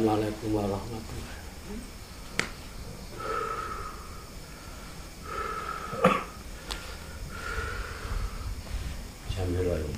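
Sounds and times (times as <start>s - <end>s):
sharp snap: 2.3s - 2.6s.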